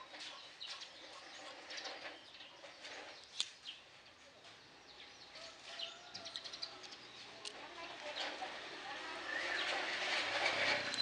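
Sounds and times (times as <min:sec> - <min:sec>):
birds chirping: 0:00.0 - 0:09.9.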